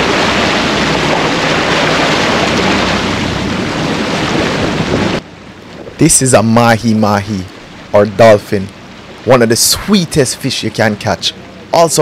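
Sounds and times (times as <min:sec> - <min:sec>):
wind on microphone: 0:00.0 - 0:08.2
boat engine hum: 0:00.0 - 0:12.0
sea water rushing: 0:00.0 - 0:12.0.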